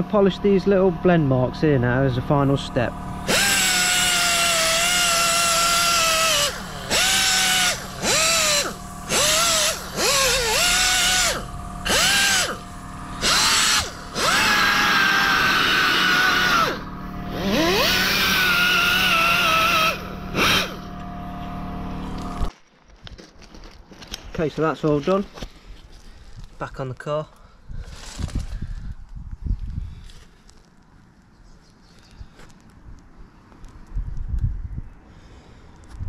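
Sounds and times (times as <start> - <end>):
air polisher whining: 0.0 - 22.5.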